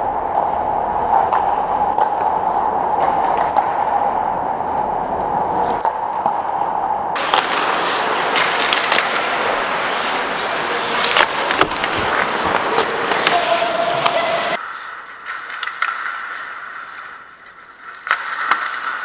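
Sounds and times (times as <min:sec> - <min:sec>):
steady hum: 0:00.0 - 0:14.6
stick and puck clacks: 0:00.3 - 0:04.1, 0:05.0 - 0:19.0
skates scraping ice: 0:04.7 - 0:19.0.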